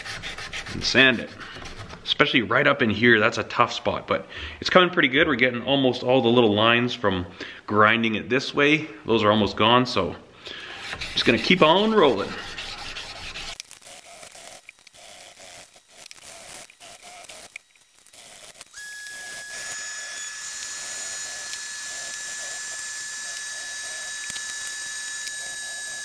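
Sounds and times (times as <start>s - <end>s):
sandpaper rubbing steel blade: 0.0s - 2.1s, 10.7s - 26.0s
high whistle-like tone with hiss: 18.7s - 26.0s.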